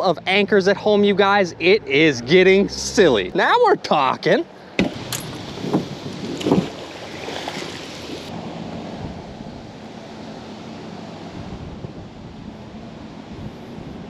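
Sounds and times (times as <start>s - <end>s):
wind: 0.0s - 14.0s
water noise: 1.6s - 14.0s
low thump: 4.8s - 5.1s.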